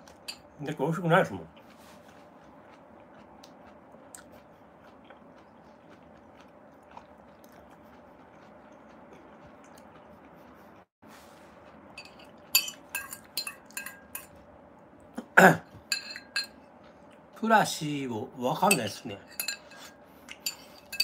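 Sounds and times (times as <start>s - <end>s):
quiet chewing: 1.2s - 17.4s, 19.2s - 21.0s
tableware clinking: 12.0s - 14.4s, 15.9s - 16.6s, 18.7s - 21.0s.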